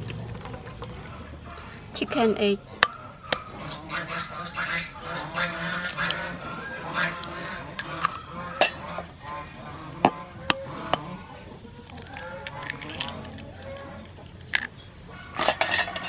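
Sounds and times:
bird calls: 0.9s - 16.0s
eggs cracking on pot rim: 5.3s - 8.8s, 11.8s - 16.0s.

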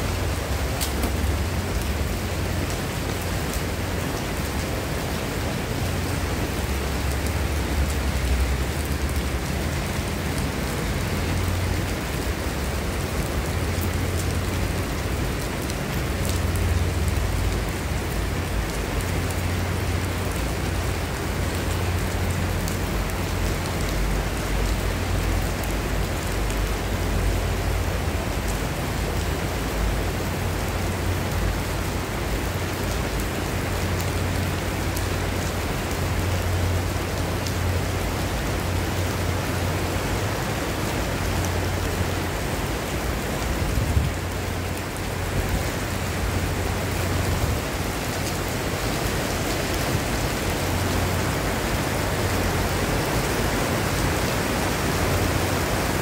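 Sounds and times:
heavy rain on paving: 0.0s - 56.0s
wind rumbling on microphone: 43.4s - 48.7s.

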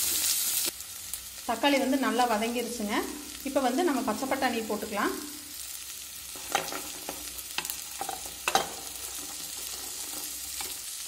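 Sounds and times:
vegetables sizzling in oil: 0.0s - 11.0s
spoon clinking against pan: 7.6s - 9.0s.

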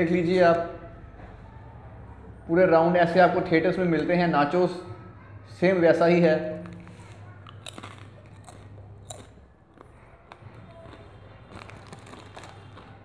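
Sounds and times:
crunching and chewing chips: 6.5s - 13.0s.

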